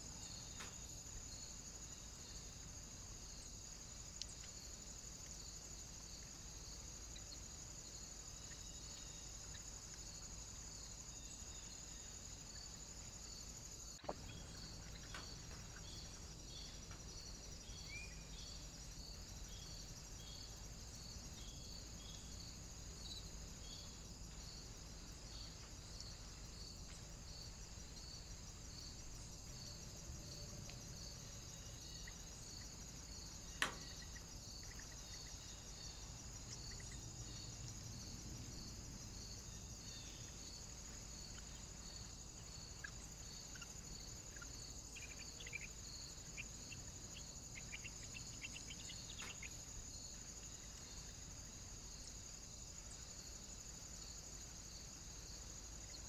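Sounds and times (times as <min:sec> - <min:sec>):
insect chirping: 0:00.0 - 0:56.0
faint high bird chirps: 0:36.5 - 0:37.1, 0:42.8 - 0:49.6.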